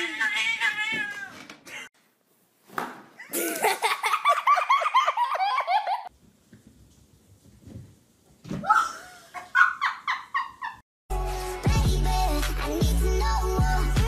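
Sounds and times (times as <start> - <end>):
girl laughing: 3.2 - 6.1, 8.7 - 10.8
person laughing in bursts: 3.2 - 6.1.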